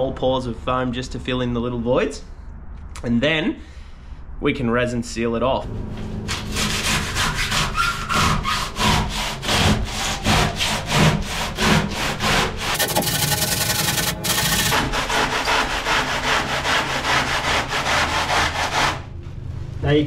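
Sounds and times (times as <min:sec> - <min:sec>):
hand saw cutting foam: 0:06.3 - 0:19.0.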